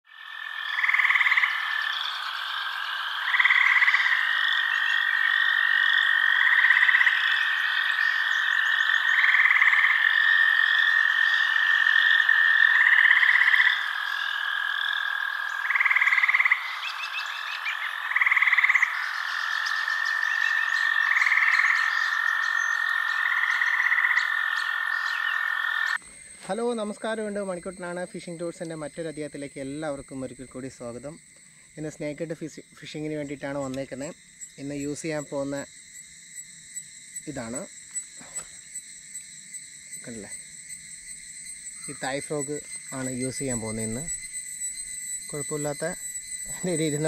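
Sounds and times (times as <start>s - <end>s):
frogs croaking: 0.0s - 47.0s
high frog trill: 0.1s - 47.0s.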